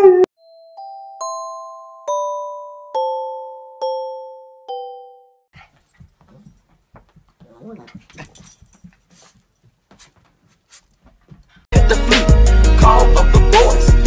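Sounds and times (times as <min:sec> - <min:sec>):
light taps and scuffs: 0:05.6 - 0:11.7
dog whimpering: 0:07.4 - 0:08.4.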